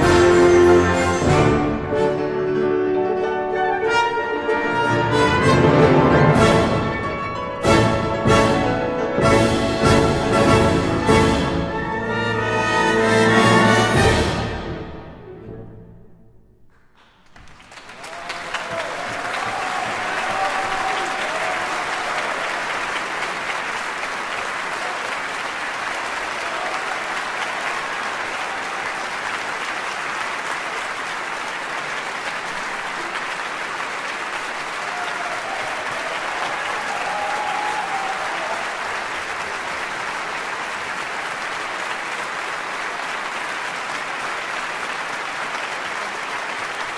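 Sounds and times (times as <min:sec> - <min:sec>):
audience applause: 0:16.7 - 0:46.9.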